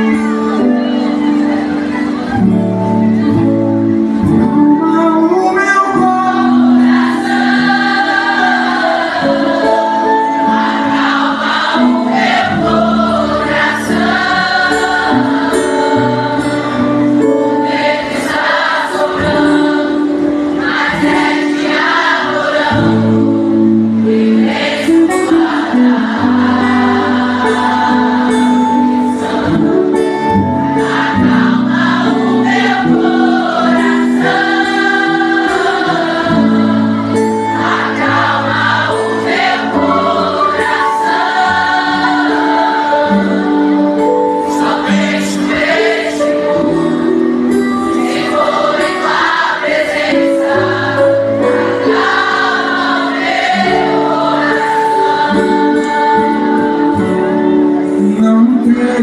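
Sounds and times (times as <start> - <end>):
acoustic guitar and band: 0.0 - 59.0
crowd singing along: 0.0 - 59.0
person singing: 4.2 - 6.9, 54.7 - 59.0.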